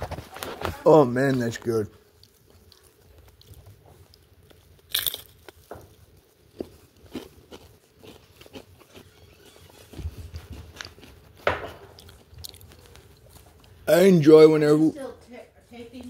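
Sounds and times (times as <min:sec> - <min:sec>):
person chewing food: 0:01.5 - 0:13.9.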